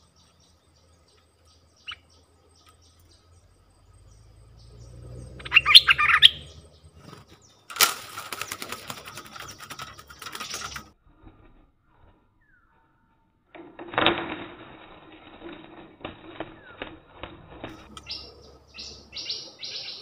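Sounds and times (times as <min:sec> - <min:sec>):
birds chirping sharply: 0:00.0 - 0:11.0, 0:17.6 - 0:20.0
bird wings flapping against cage: 0:05.5 - 0:12.2, 0:13.6 - 0:19.2.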